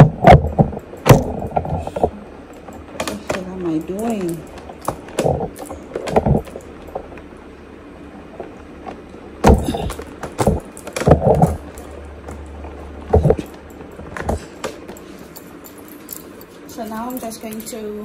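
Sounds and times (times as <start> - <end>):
loud close knocks and bumps: 0.0 - 2.1, 4.6 - 6.6, 9.4 - 12.4, 13.0 - 14.9
low handling rumble: 0.0 - 18.0.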